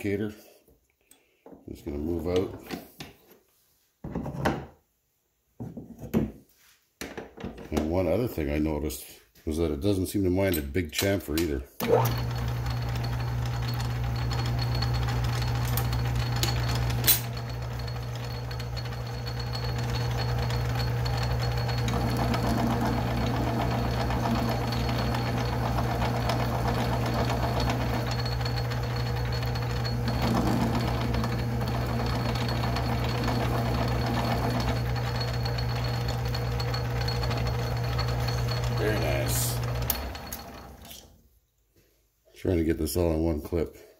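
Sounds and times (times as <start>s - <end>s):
lathe tool cutting steel: 11.8s - 41.0s
metal lathe humming: 11.8s - 41.1s.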